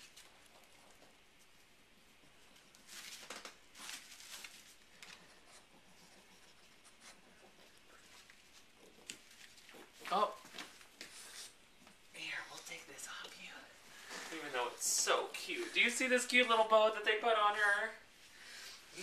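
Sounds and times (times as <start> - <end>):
puppy scratching and rustling: 0.0 - 12.0.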